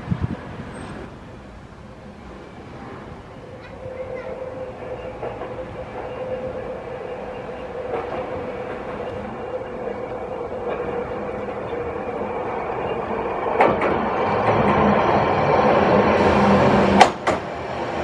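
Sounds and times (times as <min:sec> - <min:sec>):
tram running on track: 0:00.0 - 0:18.0.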